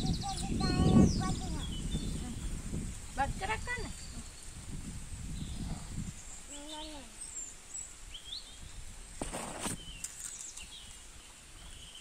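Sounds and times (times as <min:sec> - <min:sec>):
noisy rustle: 0:00.0 - 0:12.0.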